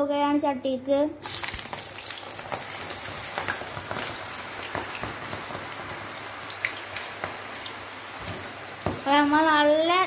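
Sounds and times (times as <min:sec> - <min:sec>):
deep-frying sizzle: 0:01.2 - 0:10.0
oil popping and crackling: 0:01.2 - 0:10.0.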